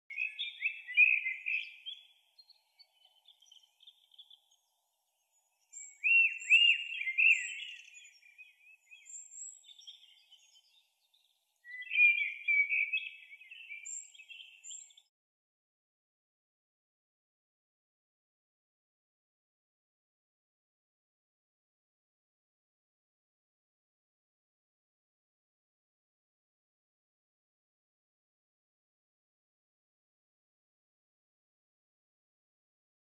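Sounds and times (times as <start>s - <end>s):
songbird chirping and warbling: 0.1s - 15.1s.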